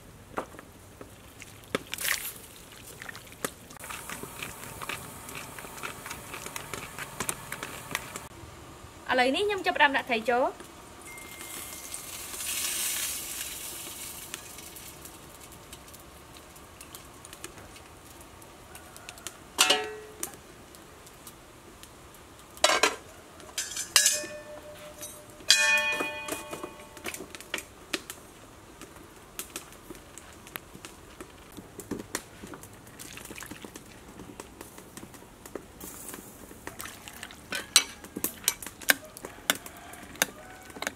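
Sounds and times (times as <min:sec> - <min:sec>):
soft hiss of fish in broth: 0:11.1 - 0:17.1, 0:35.7 - 0:37.5
metal pot and lid clanks: 0:19.6 - 0:20.2, 0:22.6 - 0:23.0, 0:23.6 - 0:27.2, 0:37.5 - 0:38.7.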